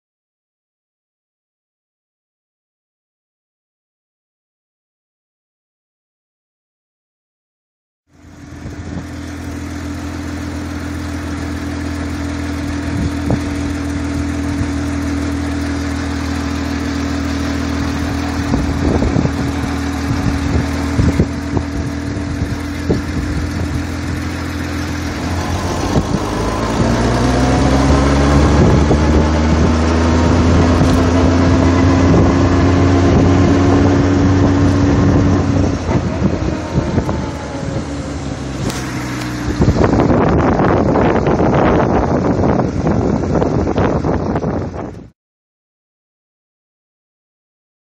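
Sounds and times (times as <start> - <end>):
motorcycle engine running: 8.1 - 45.1.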